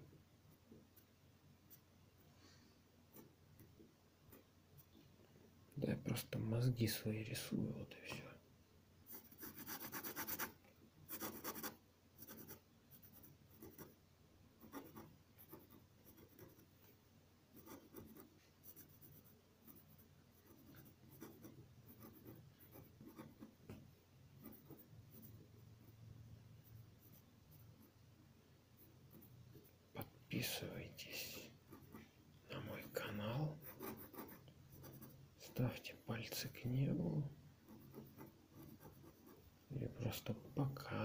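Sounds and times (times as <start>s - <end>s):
ballpoint pen scratching on paper: 9.1s - 13.9s, 14.6s - 16.7s, 17.6s - 23.5s, 33.6s - 35.2s, 37.7s - 39.4s.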